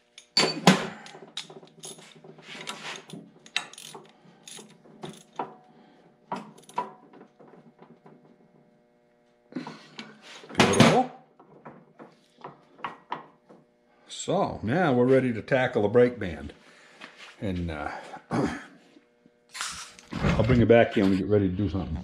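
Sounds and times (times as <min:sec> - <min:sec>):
metal parts clattering: 0:00.2 - 0:05.4.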